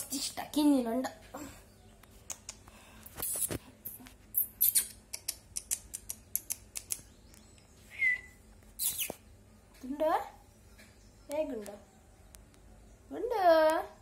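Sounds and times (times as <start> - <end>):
lip kissing clicks: 2.0 - 7.4, 8.8 - 9.2.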